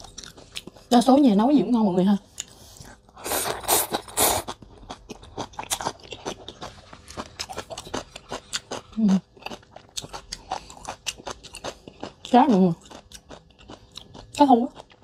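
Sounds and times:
wet chewing: 0.0s - 1.0s, 2.3s - 15.0s
slurping noodles: 2.6s - 4.6s.

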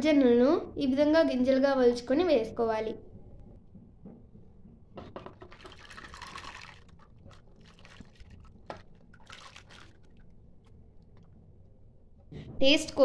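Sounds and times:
corn kernels splashing into water: 5.4s - 11.3s.

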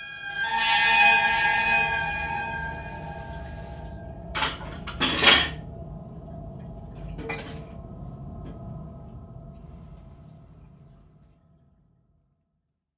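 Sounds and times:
harsh metallic scrape hits: 0.0s - 5.6s
dark film score drone: 0.0s - 11.4s.

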